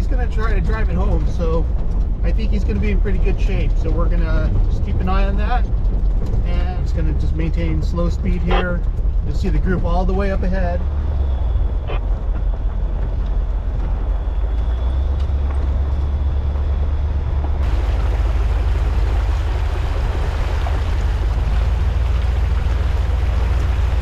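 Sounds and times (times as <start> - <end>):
vehicle engine and tyres rumbling: 0.0 - 24.0
tyres splashing through mud: 6.8 - 24.0
wind on microphone: 8.2 - 24.0.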